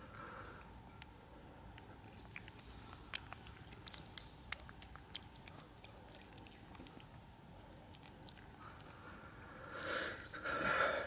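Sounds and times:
cats chewing wet food: 0.0 - 10.8
wet smacks and jaw clicks: 0.6 - 9.0.

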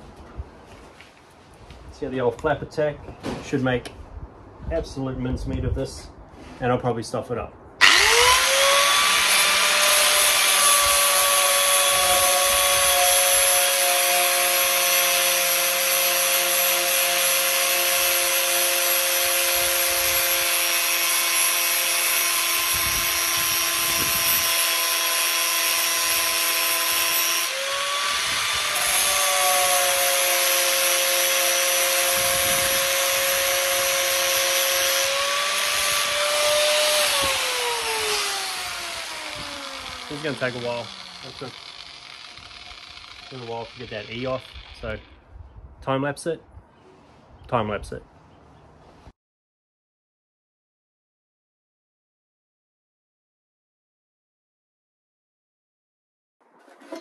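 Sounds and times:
angle grinder grinding metal: 7.8 - 45.2.

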